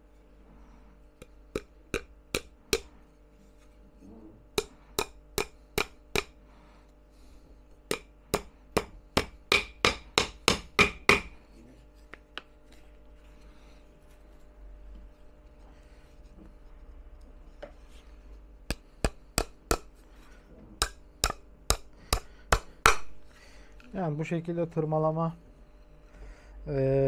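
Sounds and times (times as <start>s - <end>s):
hammer striking nails into wood: 1.5s - 2.9s, 4.6s - 6.4s, 7.9s - 11.4s, 18.7s - 19.9s, 20.8s - 23.2s.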